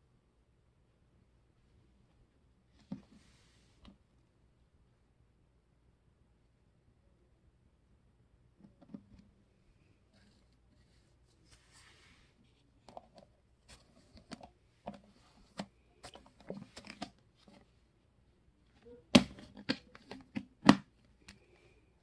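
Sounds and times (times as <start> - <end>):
plastic lid crackling and snapping: 19.1 - 20.9.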